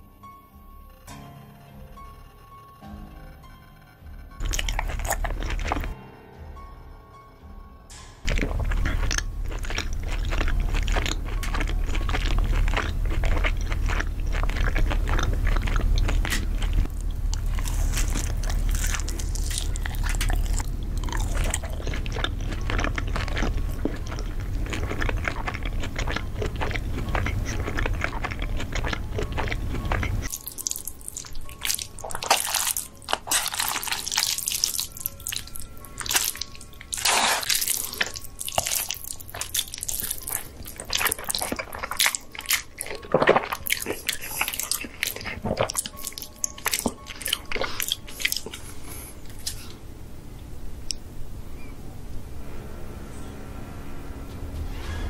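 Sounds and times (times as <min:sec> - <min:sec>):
steady low drone: 0:00.0 - 0:30.3, 0:48.6 - 0:55.0
crunchy bites and chewing: 0:04.4 - 0:06.0, 0:08.3 - 0:49.7
noodle slurping and chewing: 0:04.4 - 0:06.0, 0:08.3 - 0:49.7.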